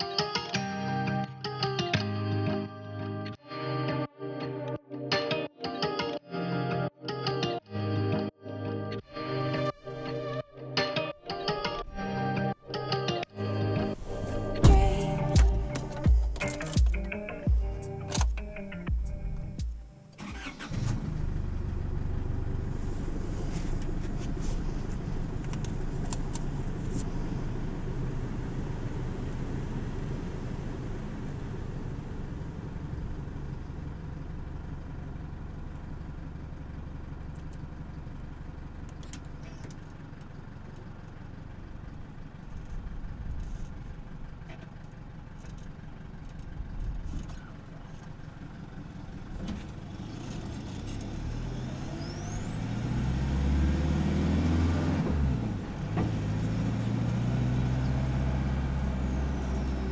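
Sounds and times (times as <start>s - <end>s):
diesel engine and exhaust drone: 13.3s - 59.9s.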